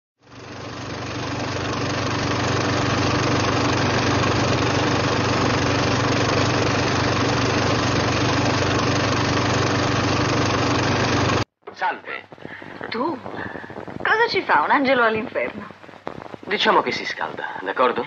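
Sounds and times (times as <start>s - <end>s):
low hum: 0.2s - 11.5s
even hiss: 11.9s - 18.0s.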